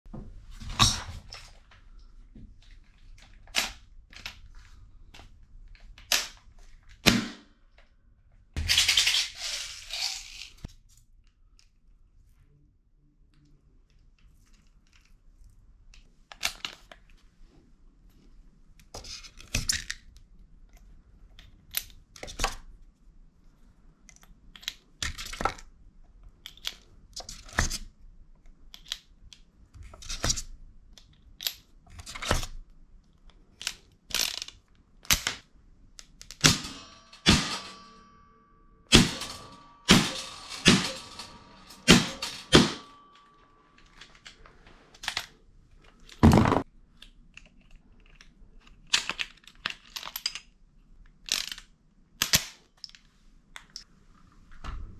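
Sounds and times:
metallic clicks and clinks: 36.2 - 44.4.

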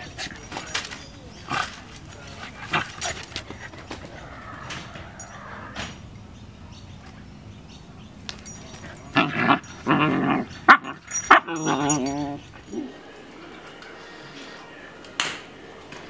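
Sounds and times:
puppies play-fighting: 0.0 - 6.0, 8.3 - 14.6
puppies barking and yelping: 8.7 - 12.8.

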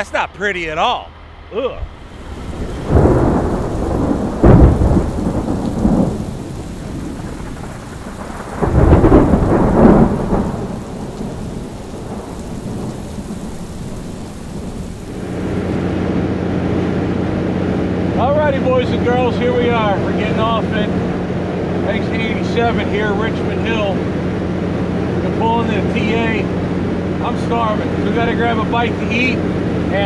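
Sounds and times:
steady rain: 1.6 - 30.0
thunder rumbling: 1.8 - 30.0.

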